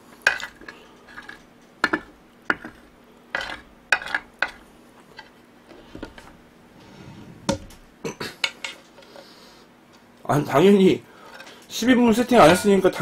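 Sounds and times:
spoon scraping a plate: 0:00.3 - 0:04.6.

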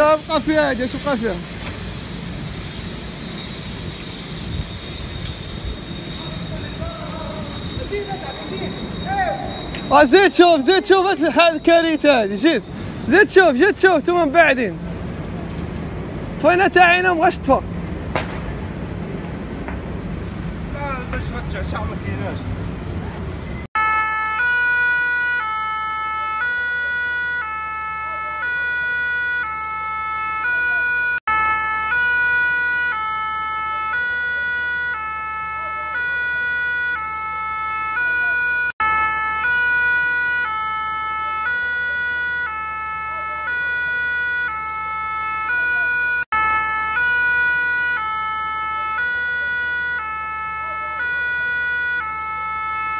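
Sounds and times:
two-tone siren: 0:03.0 - 0:14.7, 0:23.7 - 0:52.9.

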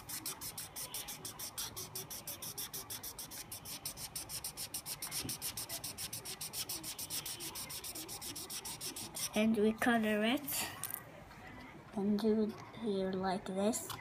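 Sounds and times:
marker scratching on paper: 0:00.0 - 0:09.5.

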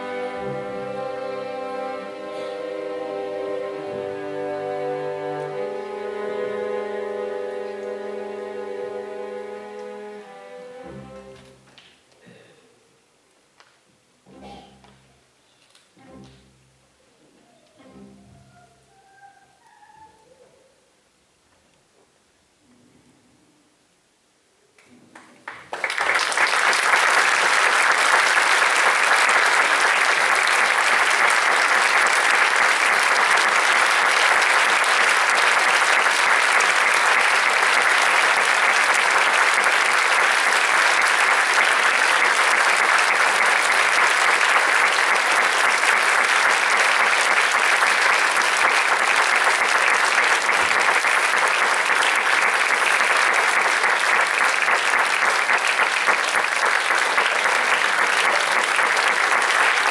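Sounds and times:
audience applauding: 0:25.1 - 0:59.9.

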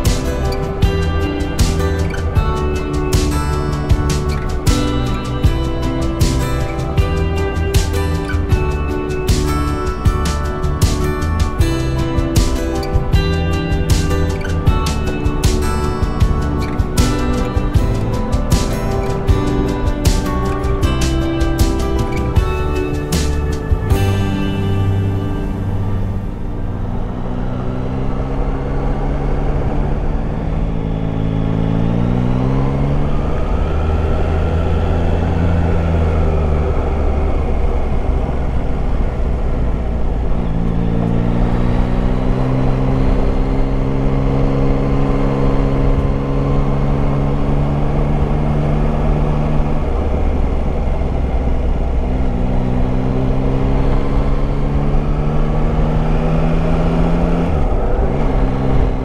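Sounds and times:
motorcycle engine running: 0:00.0 - 0:59.0
road rush: 0:00.0 - 0:59.0.

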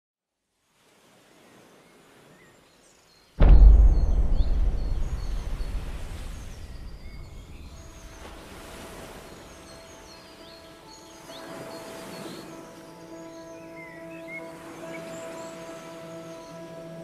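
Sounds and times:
birds chirping: 0:01.9 - 0:17.0
deep cinematic boom: 0:03.4 - 0:08.3.

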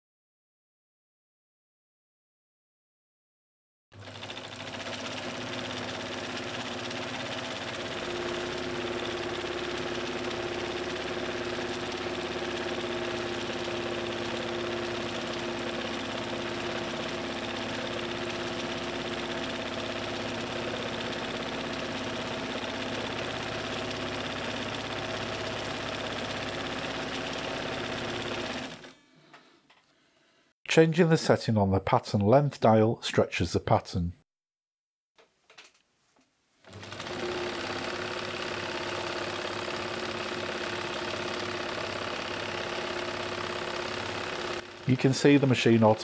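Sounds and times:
electric sewing machine running: 0:04.0 - 0:29.0, 0:36.6 - 0:45.8.

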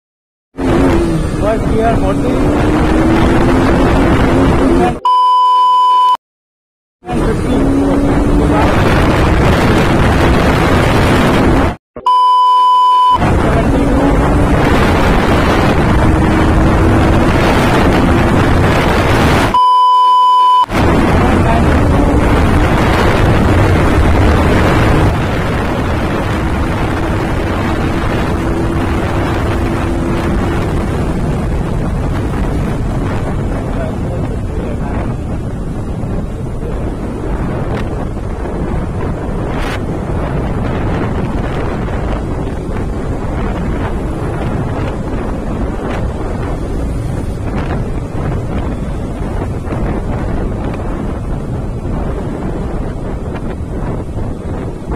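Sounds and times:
motorcycle engine accelerating: 0:00.6 - 0:05.0, 0:13.2 - 0:19.6, 0:20.7 - 0:33.9
wind rush on microphone: 0:00.6 - 0:05.0, 0:07.0 - 0:11.8, 0:13.0 - 0:19.8, 0:20.6 - 0:54.9
short high beep tones: 0:05.0 - 0:06.2, 0:12.0 - 0:13.2, 0:19.6 - 0:20.7.

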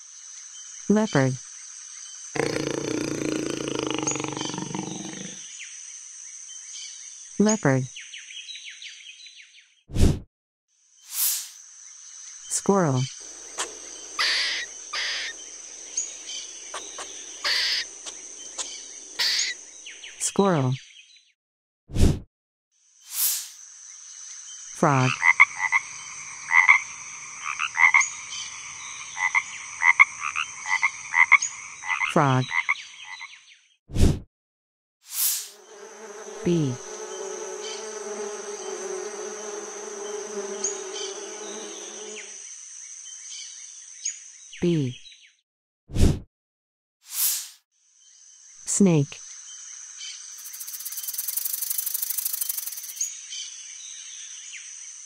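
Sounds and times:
high insect drone: 0:00.0 - 0:06.6, 0:11.1 - 0:20.1, 0:23.1 - 0:32.6, 0:35.2 - 0:43.2, 0:48.0 - 0:53.2
bee buzzing: 0:02.4 - 0:05.4, 0:13.2 - 0:19.7, 0:35.3 - 0:42.4
squirrel raspy chirps: 0:02.4 - 0:05.4, 0:13.3 - 0:19.6.

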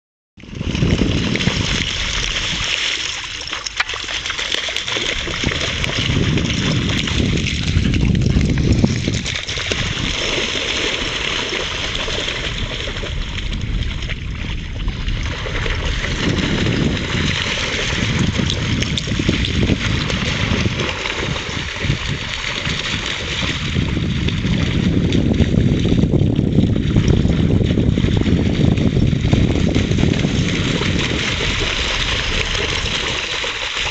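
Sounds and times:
dogs splashing through water: 0:00.4 - 0:33.9
continuous low rumble: 0:11.3 - 0:33.9.

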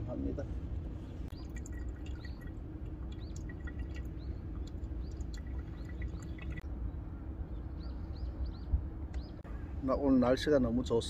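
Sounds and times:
coffee trickling and dripping: 0:01.3 - 0:06.6.

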